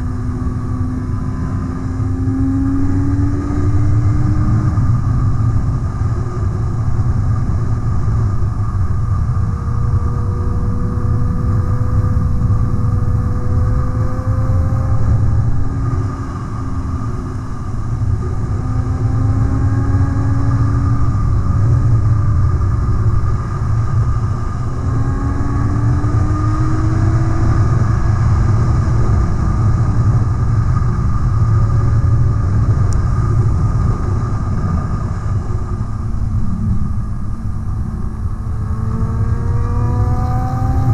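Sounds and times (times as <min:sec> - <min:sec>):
wind rush on microphone: 0:00.0 - 0:40.9
motorcycle engine revving: 0:33.6 - 0:40.9.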